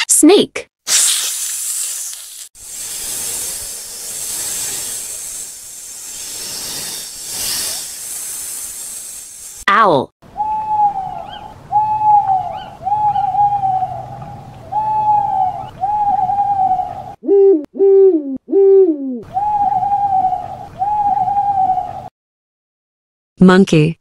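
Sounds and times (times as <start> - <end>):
owl hooting: 10.3 - 22.1.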